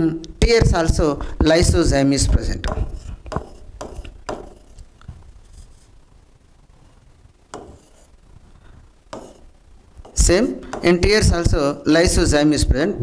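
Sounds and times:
pen rubbing on touchscreen: 1.6s - 4.8s, 5.4s - 6.0s, 7.5s - 8.2s, 9.1s - 11.0s
pen taps: 2.2s - 4.8s, 7.5s - 7.9s, 9.1s - 9.4s, 10.0s - 11.0s.

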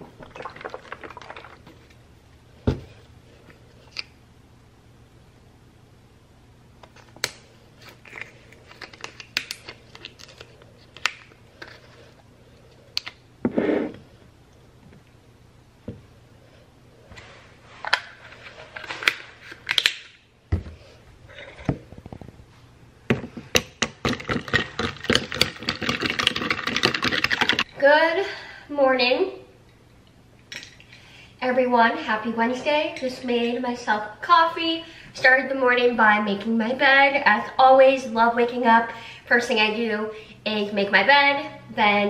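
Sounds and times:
liquid pouring: 0.0s - 1.9s.

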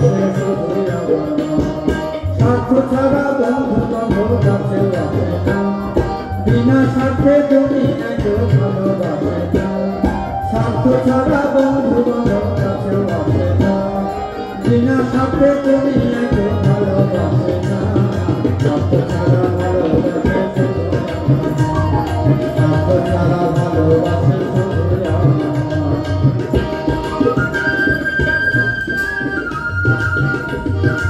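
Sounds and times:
hand drums: 0.0s - 31.0s
harmonium: 0.0s - 31.0s
bamboo flute melody: 5.9s - 7.2s, 10.0s - 11.2s, 21.5s - 23.0s, 26.4s - 31.0s.

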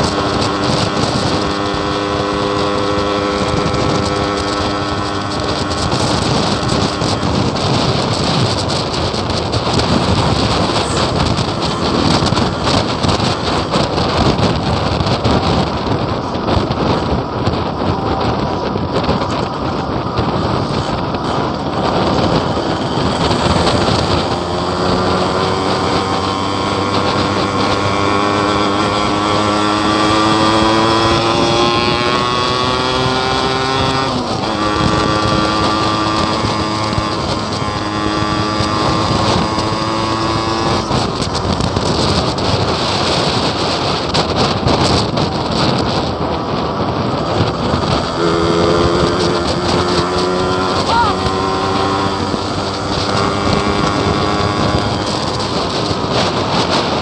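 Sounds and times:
two-stroke motorcycle engine: 0.0s - 57.0s
wind rush on microphone: 0.0s - 57.0s.

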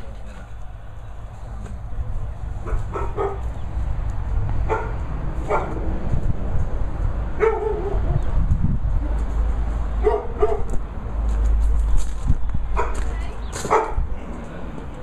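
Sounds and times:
dogs barking: 2.6s - 3.6s, 4.6s - 5.9s, 7.3s - 8.4s, 10.0s - 10.8s, 12.8s - 14.4s.

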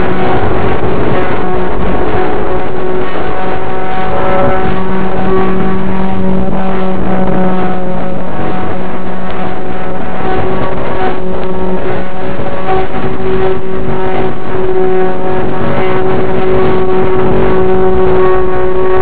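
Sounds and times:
air rushing: 0.0s - 19.0s
electric motor and propeller humming: 0.0s - 19.0s.

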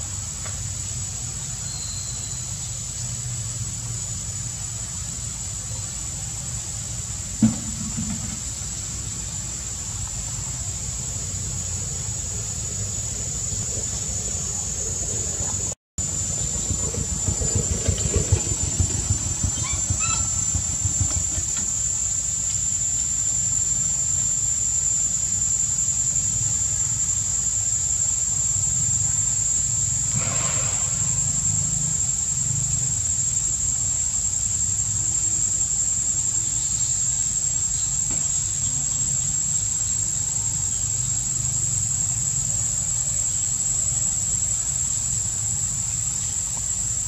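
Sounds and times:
high-pitched insect drone: 0.0s - 47.0s
faint chirps: 0.8s - 24.3s.

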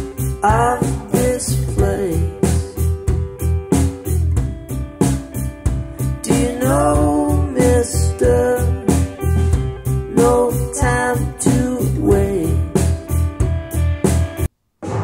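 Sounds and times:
person singing: 0.0s - 3.0s, 6.0s - 13.1s
acoustic guitar: 0.0s - 15.0s
deep bass beat: 0.0s - 15.0s.

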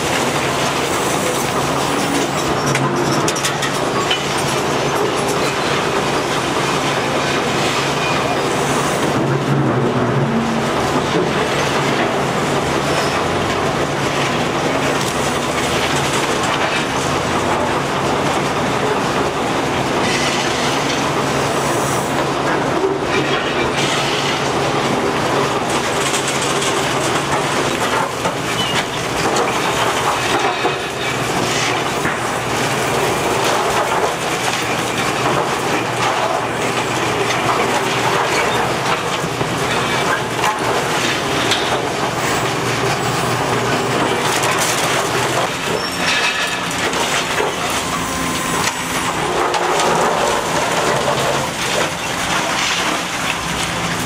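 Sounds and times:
excavator diesel engine: 0.0s - 54.0s
concrete crunching and scraping: 25.6s - 54.0s.

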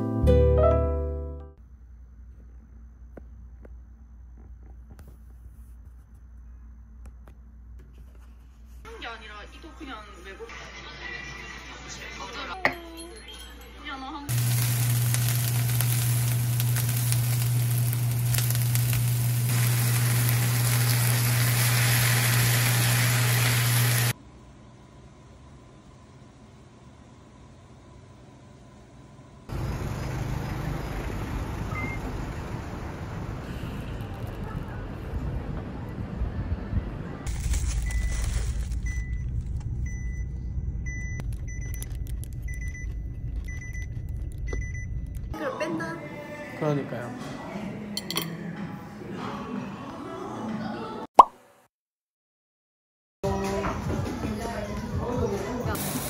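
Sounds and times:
cabbage sizzling in a frying pan: 14.3s - 24.1s
plastic bag rustling: 37.3s - 39.5s.

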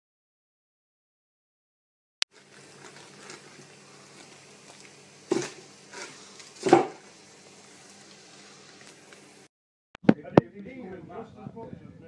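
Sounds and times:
plastic bag crinkling: 2.3s - 9.2s
faint steady hum: 2.3s - 9.5s.

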